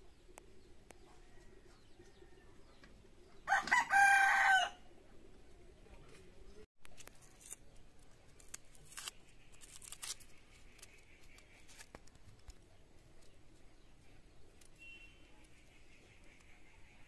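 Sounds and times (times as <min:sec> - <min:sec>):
onion skin crackling and tearing: 0:06.8 - 0:14.8.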